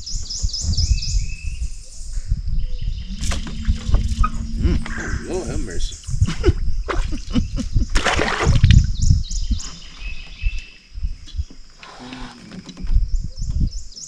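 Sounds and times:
birds chirping: 0:00.0 - 0:08.0.

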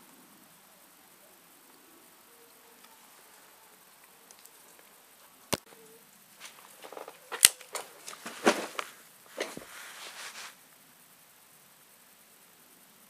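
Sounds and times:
revolver handling clicks: 0:06.8 - 0:08.2.

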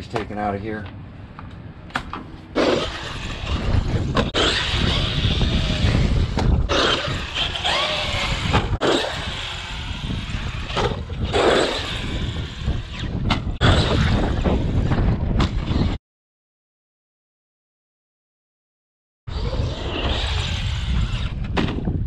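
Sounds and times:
rush of wind and dirt: 0:00.0 - 0:16.0, 0:19.3 - 0:22.0
electric motor whining: 0:02.6 - 0:16.0, 0:19.3 - 0:21.6.

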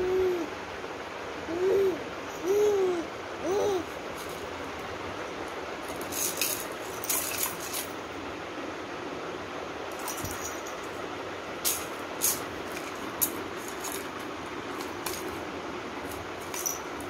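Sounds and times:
hoots rising and falling: 0:00.0 - 0:00.6, 0:01.4 - 0:03.9
baby rattle shaking: 0:05.8 - 0:08.0, 0:09.9 - 0:10.9, 0:11.6 - 0:15.4, 0:16.0 - 0:17.0.

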